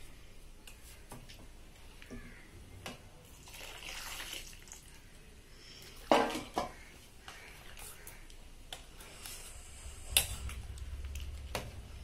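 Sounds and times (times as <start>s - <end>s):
custard pouring and splashing: 3.2s - 5.0s.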